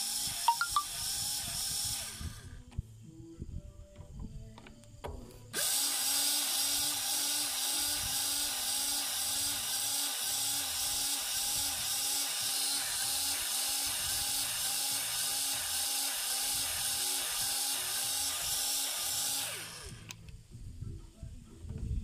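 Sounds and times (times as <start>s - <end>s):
grease gun motor pulsing: 0.0s - 2.6s, 5.6s - 20.2s.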